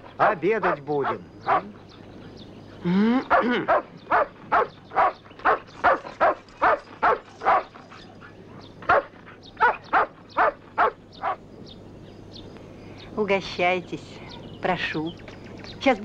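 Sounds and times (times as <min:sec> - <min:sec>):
dog barking: 0:00.2 - 0:01.7, 0:03.3 - 0:08.1, 0:08.9 - 0:11.4.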